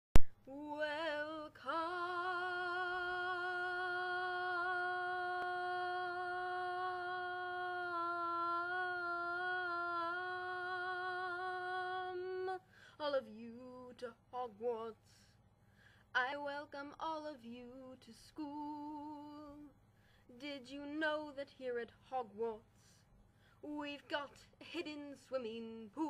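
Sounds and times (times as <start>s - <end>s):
woman singing a long note: 0.4s - 12.6s.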